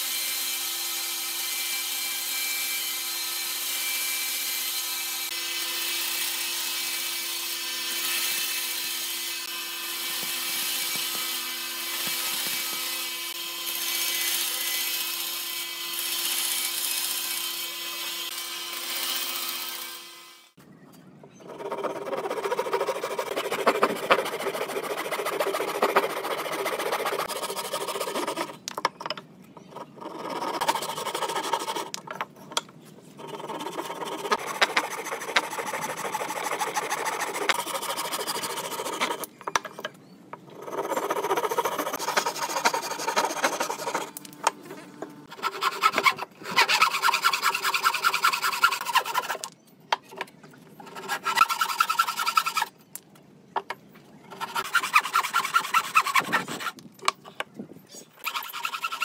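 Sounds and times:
hand saw cutting wood: 0:21.5 - 0:28.6, 0:29.9 - 0:32.0, 0:33.2 - 0:39.3, 0:40.6 - 0:49.5, 0:50.8 - 0:52.7, 0:54.3 - 0:56.8, 0:58.2 - 0:59.0.

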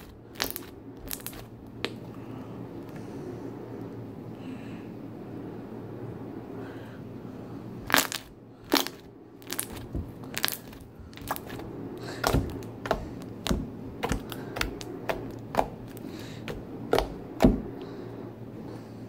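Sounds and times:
slime clicking and popping: 0:00.0 - 0:02.0.

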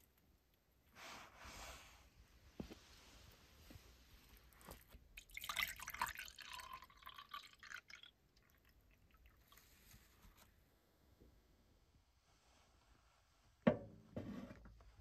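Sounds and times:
tea pouring into plastic mug: 0:05.2 - 0:09.9.

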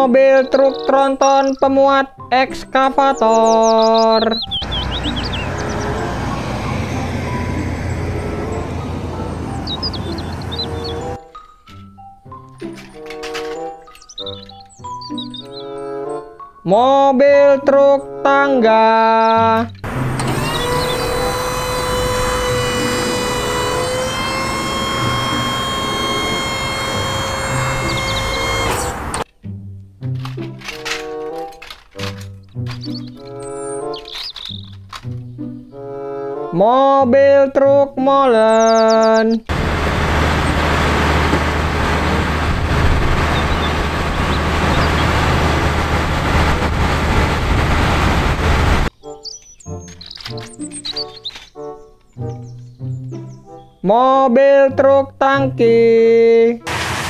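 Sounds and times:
hydraulics whining: 0:03.7 - 0:11.2, 0:19.8 - 0:29.3, 0:39.5 - 0:48.9, 0:56.7 - 0:57.0
truck engine running: 0:04.3 - 0:11.2, 0:19.8 - 0:29.2, 0:39.5 - 0:48.9, 0:56.7 - 0:57.0
hydraulic boom folding: 0:19.8 - 0:29.3, 0:30.1 - 0:35.3.

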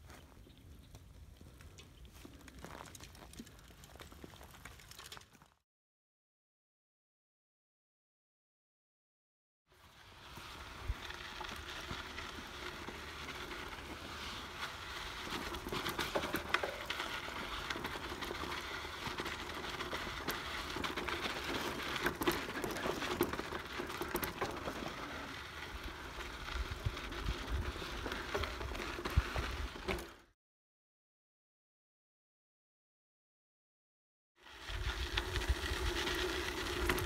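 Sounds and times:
bike tyres crunching on gravel: 0:00.0 - 0:05.6, 0:09.8 - 0:30.3, 0:34.4 - 0:37.0.

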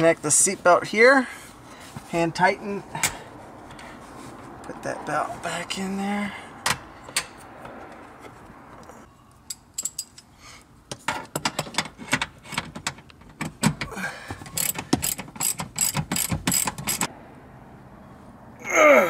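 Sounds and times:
ratchet wrench clicking: 0:14.5 - 0:17.1.

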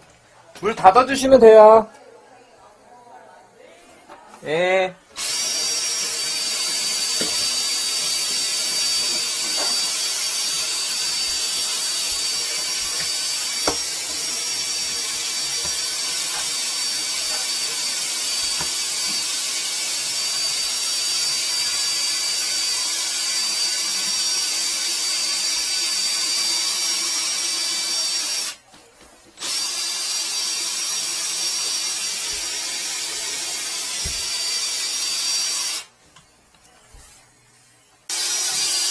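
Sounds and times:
drain cleaning machine whining: 0:05.1 - 0:28.6, 0:29.4 - 0:35.9, 0:38.1 - 0:38.9.

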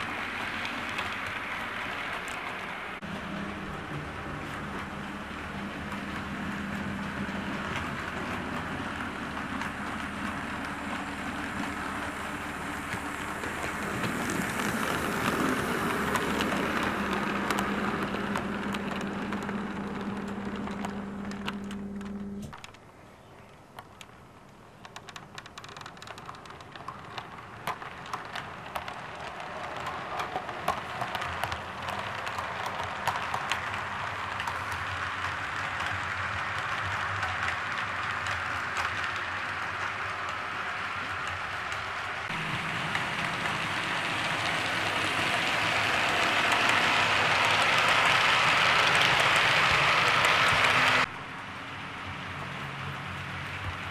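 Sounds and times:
wheels clicking over rail joints: 0:00.0 - 0:53.9
model train motor humming: 0:03.4 - 0:22.5, 0:30.9 - 0:51.1.

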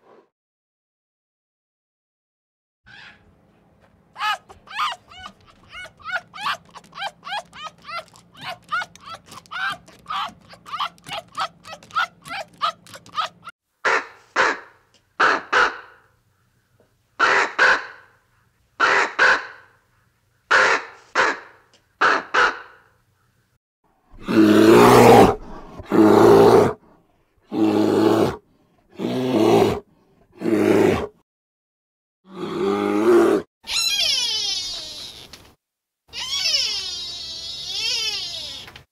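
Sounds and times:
bear growling: 0:04.2 - 0:13.5, 0:24.1 - 0:31.2, 0:32.3 - 0:33.5.

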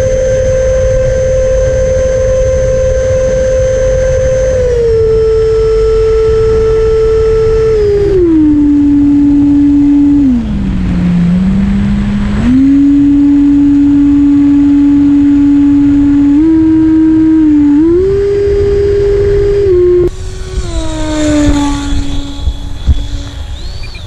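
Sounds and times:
electric ducted fan whine: 0:00.0 - 0:24.0
wind rumble on camera: 0:00.0 - 0:24.0.

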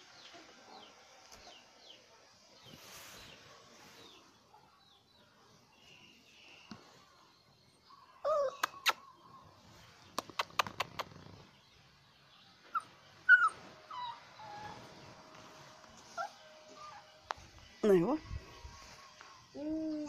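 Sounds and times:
puppy whimpering yelps: 0:12.7 - 0:14.9.

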